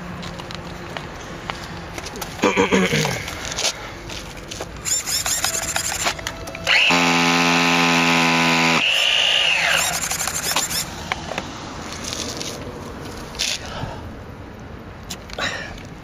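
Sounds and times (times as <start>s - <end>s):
engine whirring hum: 0.0s - 16.0s
falling whine winding down: 4.9s - 10.9s.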